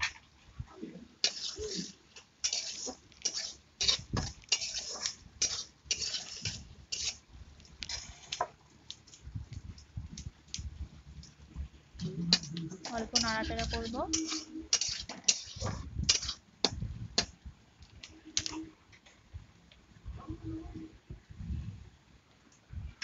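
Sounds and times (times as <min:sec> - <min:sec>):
metal spatula scraping a pan: 0:00.8 - 0:08.4, 0:12.1 - 0:17.3.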